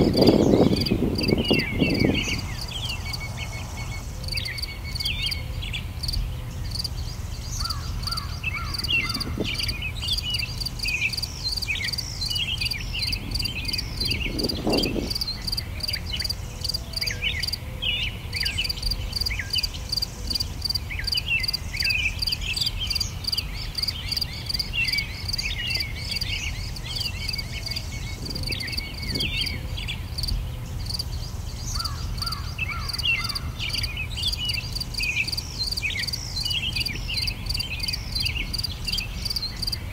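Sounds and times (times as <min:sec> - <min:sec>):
small birds chirping: 0:00.0 - 0:39.9
harsh low bird call: 0:07.6 - 0:11.2.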